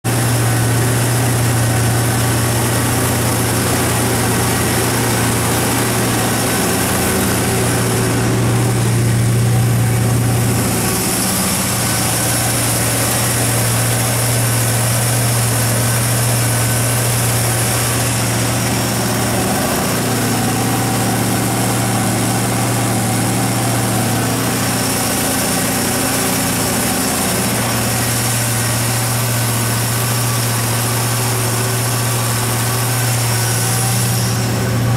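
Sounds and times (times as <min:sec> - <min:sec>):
generator engine running: 0:00.0 - 0:34.9.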